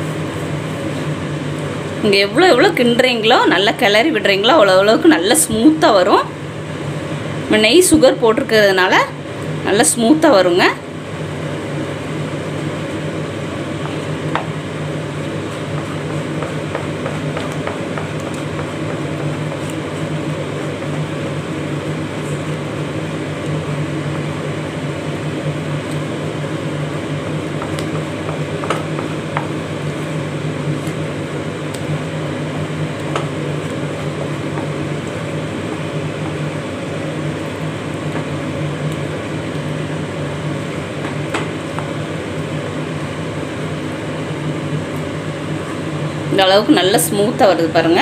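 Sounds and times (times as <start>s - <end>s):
machine hum: 0.0s - 48.0s
stirring thick food in a pan: 12.4s - 23.5s, 25.5s - 43.2s.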